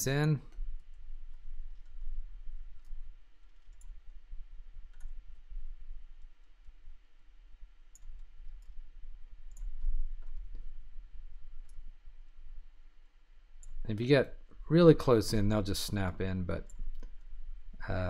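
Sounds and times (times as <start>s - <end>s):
low steady hum: 0.0s - 18.0s
computer mouse clicking: 0.5s - 7.0s, 7.9s - 12.4s, 13.6s - 13.8s, 16.6s - 17.4s.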